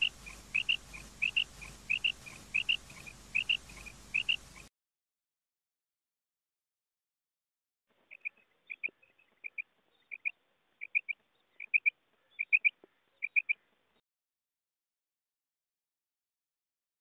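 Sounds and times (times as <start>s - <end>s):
quail calling: 0.0s - 4.7s, 8.1s - 13.6s.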